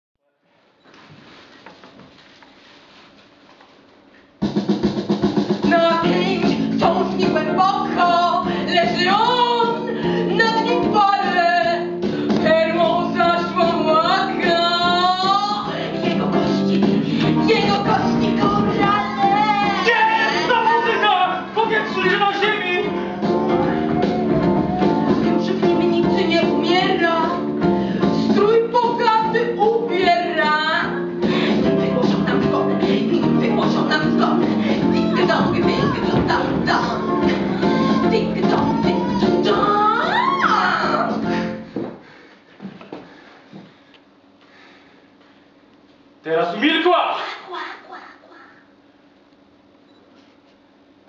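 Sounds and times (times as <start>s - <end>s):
steady musical accompaniment: 4.4s - 41.7s
woman singing: 5.6s - 41.3s.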